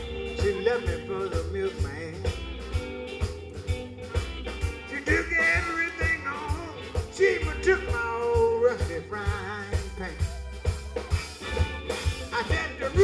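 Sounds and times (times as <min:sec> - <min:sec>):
man singing: 0:00.0 - 0:02.6, 0:04.8 - 0:10.5, 0:12.0 - 0:13.0
drum kit beat: 0:00.0 - 0:13.0
electric guitar: 0:00.0 - 0:13.0
keyboard: 0:00.0 - 0:13.0.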